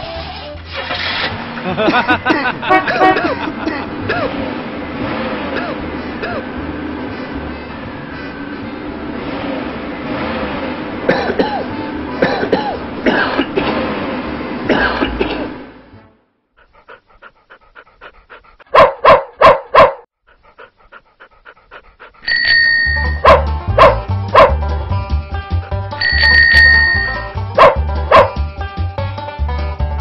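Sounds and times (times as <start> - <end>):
cartoon dog barking: 18.6 - 20.1, 23.0 - 24.6, 26.8 - 28.4
ringing bell tone: 22.2 - 23.3, 26.0 - 27.4
cartoon car engine running: 22.2 - 24.9, 26.0 - 28.3
upbeat music: 22.8 - 30.0.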